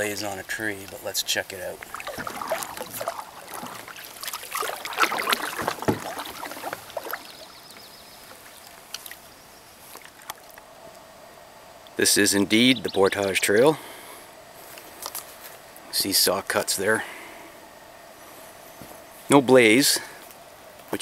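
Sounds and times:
paddle splashing and dripping: 0:01.6 - 0:10.6.

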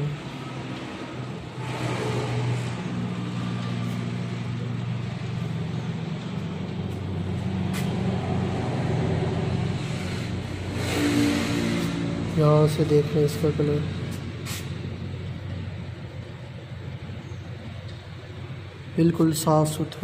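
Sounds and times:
engine idling: 0:00.0 - 0:20.0.

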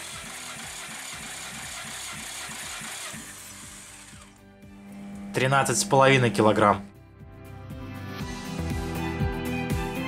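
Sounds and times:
engine cranking without firing: 0:00.0 - 0:04.4
faint background music: 0:04.2 - 0:07.0.

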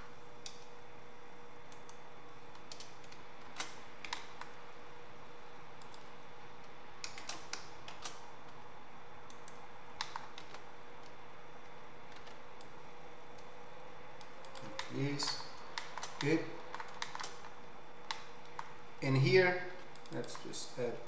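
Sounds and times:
faint steady hum: 0:00.0 - 0:21.0
keyboard and mouse clicks: 0:01.7 - 0:04.5, 0:05.8 - 0:06.1, 0:07.0 - 0:08.2, 0:09.3 - 0:11.2, 0:12.1 - 0:12.8, 0:14.2 - 0:17.5.

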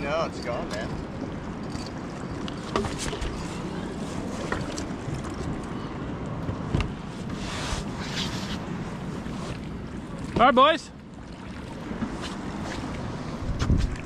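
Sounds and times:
water lapping around raft: 0:00.0 - 0:14.0
wind rumbling on microphone: 0:11.1 - 0:14.0.

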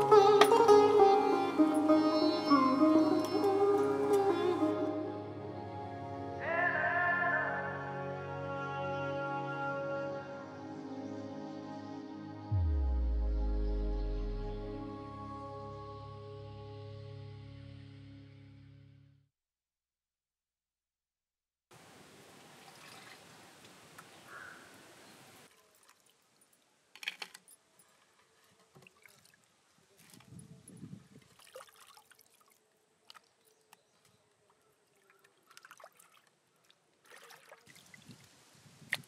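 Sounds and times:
outdoor hiss: 0:21.7 - 0:25.5
trickling water: 0:22.0 - 0:24.3, 0:25.4 - 0:27.0, 0:28.6 - 0:38.4.

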